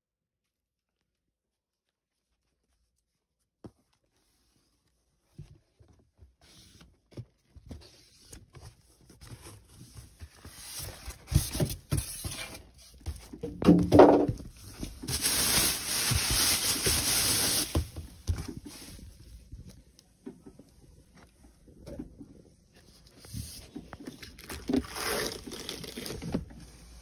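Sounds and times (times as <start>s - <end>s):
cardboard scrapes and knocks: 6.3s - 19.2s
packing rustle: 14.7s - 19.0s, 24.0s - 26.5s.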